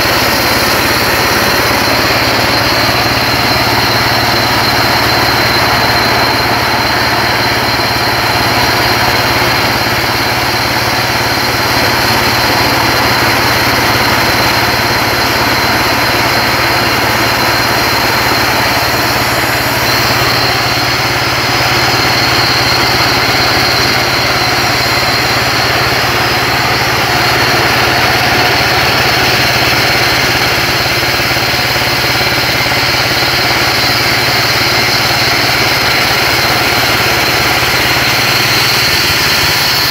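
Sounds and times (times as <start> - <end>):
band sawmill cutting timber: 0.0 - 39.9.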